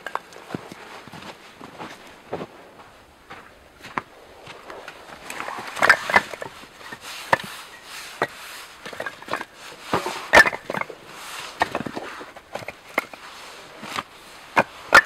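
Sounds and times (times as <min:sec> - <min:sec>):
wooden logs knocking together: 0:00.0 - 0:00.8, 0:03.9 - 0:15.0.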